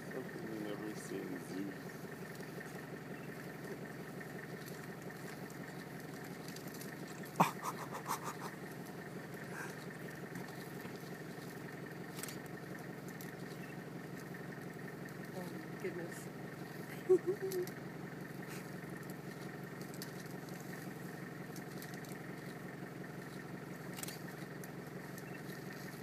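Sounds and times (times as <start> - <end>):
vehicle engine idling: 0.0 - 26.0
quick pulses: 7.4 - 8.7.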